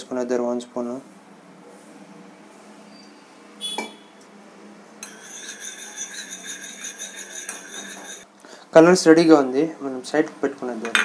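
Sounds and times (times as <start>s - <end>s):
spoon clinking against bowl: 5.0s - 8.2s.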